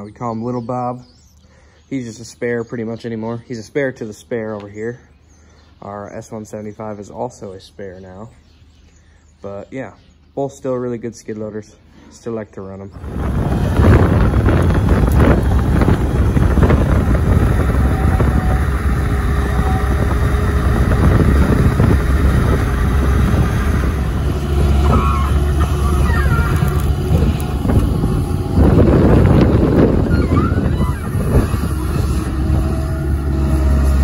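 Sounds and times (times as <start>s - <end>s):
loader engine running under load: 13.0s - 34.0s.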